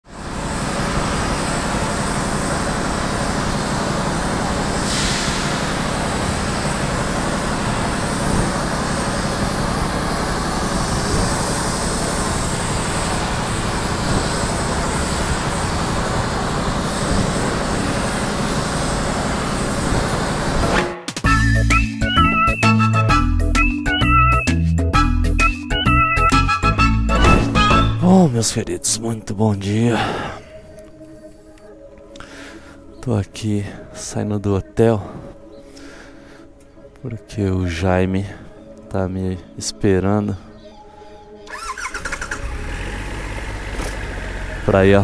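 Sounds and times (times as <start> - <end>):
gas torch flame hissing: 0.2 - 20.8.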